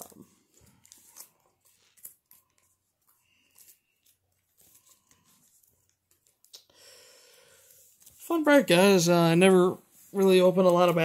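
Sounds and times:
card packaging rustling: 0.0 - 6.6.

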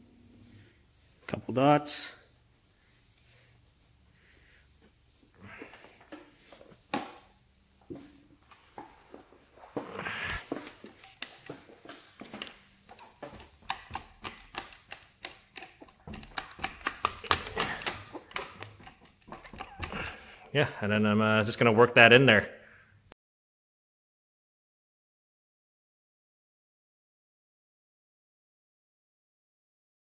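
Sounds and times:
polisher being handled: 4.7 - 20.5.

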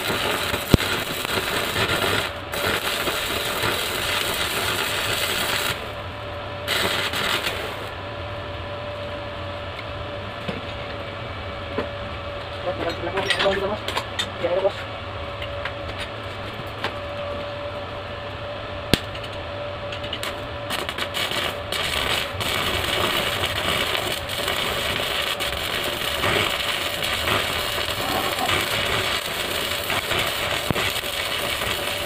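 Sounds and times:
arc welding crackling: 0.0 - 6.0, 6.6 - 8.0, 18.9 - 32.0
steady hum: 0.0 - 32.0.

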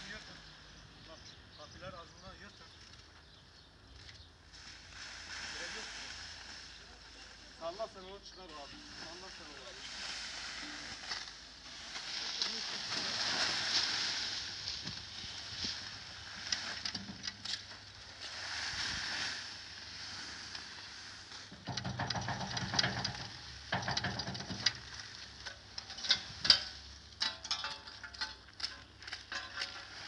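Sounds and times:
plastic sheeting crackling: 9.0 - 16.9.

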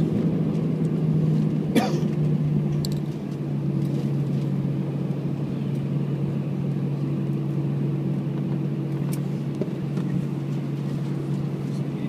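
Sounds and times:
aircraft cabin engine drone: 0.0 - 12.0.

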